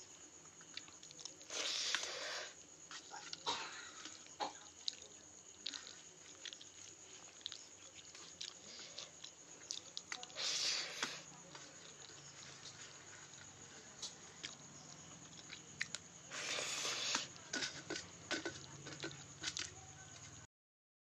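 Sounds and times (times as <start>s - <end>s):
chewing: 0.6s - 20.4s
fingers squishing food: 4.0s - 19.8s.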